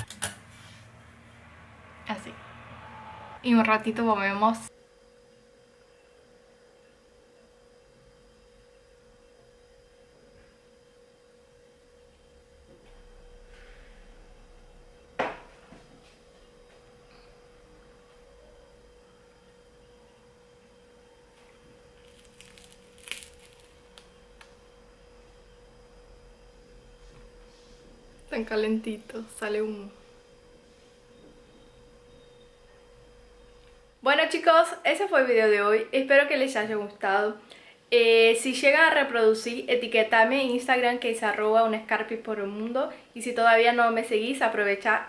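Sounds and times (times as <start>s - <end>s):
faint steady hum: 0.0s - 45.0s
bread roll tearing crackle: 21.8s - 24.6s.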